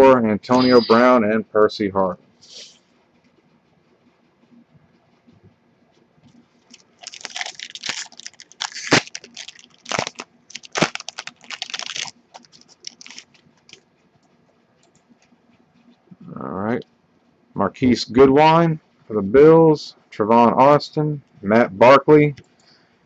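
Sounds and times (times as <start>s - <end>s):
foil wrapper tearing and crumpling: 6.7s - 13.8s.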